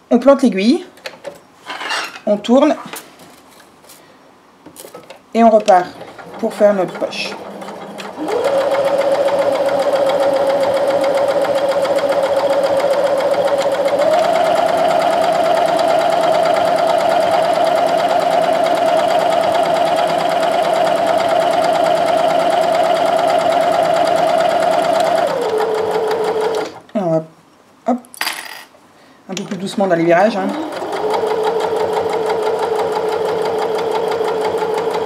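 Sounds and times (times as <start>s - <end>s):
sewing machine running: 5.8s - 26.8s, 30.4s - 35.0s.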